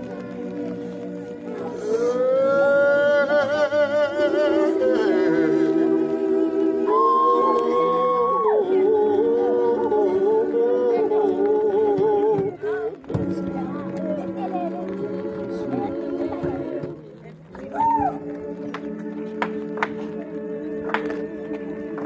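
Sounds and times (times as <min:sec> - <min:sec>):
choir singing a cappella: 0:00.0 - 0:17.1, 0:17.9 - 0:22.0.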